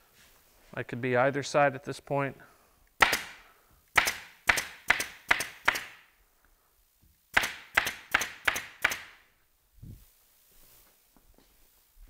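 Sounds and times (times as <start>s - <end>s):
pneumatic staple gun firing: 3.0s - 6.0s, 7.3s - 9.2s.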